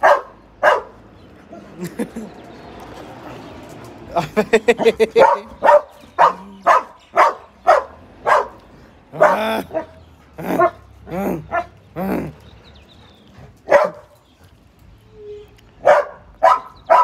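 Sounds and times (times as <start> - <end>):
dog barking: 0.0 - 1.0, 5.2 - 10.8, 11.5 - 11.8, 13.7 - 14.1, 15.8 - 17.0.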